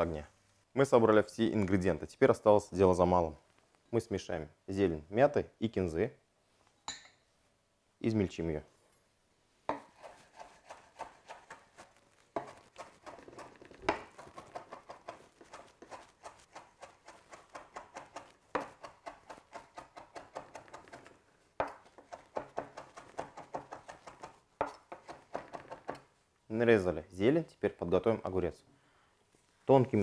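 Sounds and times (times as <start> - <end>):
knife chopping on wooden board: 9.7 - 26.0.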